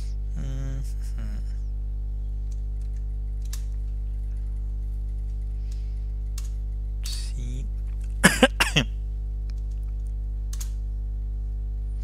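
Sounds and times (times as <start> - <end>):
person clearing throat: 0.0 - 1.6, 8.2 - 8.9
low electrical hum: 0.0 - 12.0
person coughing: 8.2 - 8.9.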